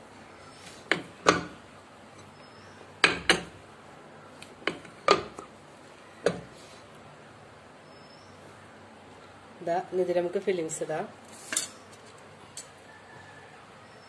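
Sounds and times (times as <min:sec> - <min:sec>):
dough press clanking and knocking: 0:00.9 - 0:01.6, 0:03.0 - 0:03.6, 0:04.6 - 0:05.5.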